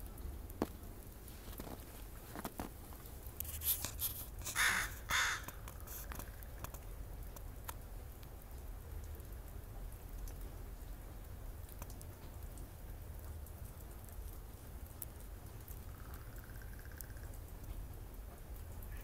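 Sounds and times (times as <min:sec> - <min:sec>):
crow cawing: 0:04.5 - 0:05.6.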